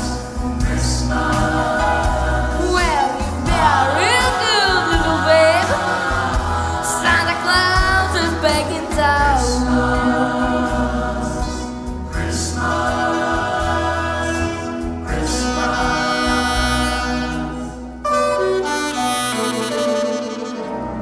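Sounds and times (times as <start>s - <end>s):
backing track with bass line: 0.0s - 20.5s
saxophone solo: 14.4s - 21.0s.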